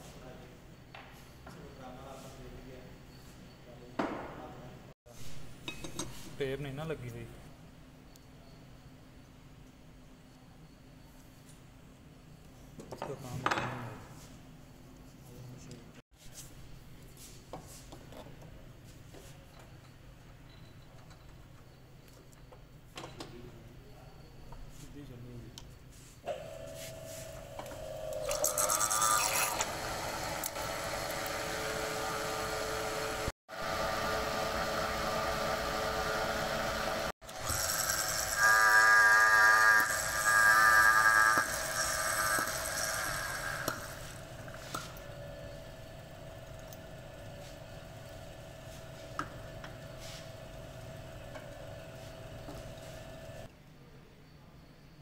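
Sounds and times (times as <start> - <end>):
lathe motor hum: 26.3 - 53.5
metal lathe cutting: 27.7 - 45.0
loud pitched ringing: 37.3 - 46.3.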